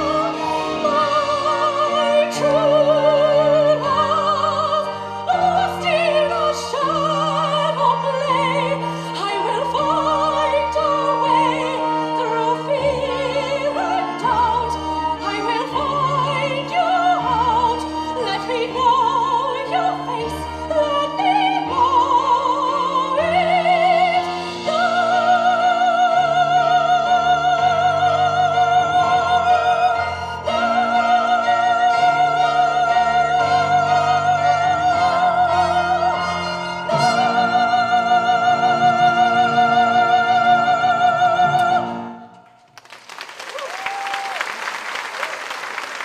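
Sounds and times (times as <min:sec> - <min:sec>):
orchestral accompaniment: 0:00.0 - 0:42.5
audience applause: 0:42.7 - 0:46.0.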